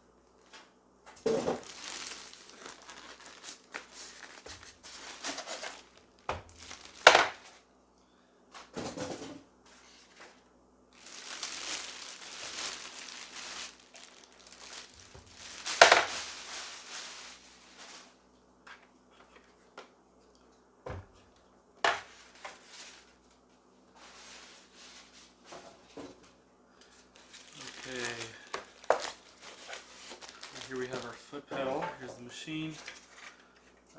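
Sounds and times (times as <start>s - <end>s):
styrofoam pieces handled: 0.5s - 7.6s, 11.0s - 18.2s, 27.1s - 31.7s
plastic bag crinkling: 1.2s - 7.6s, 10.9s - 18.2s, 26.9s - 31.5s, 32.5s - 33.8s.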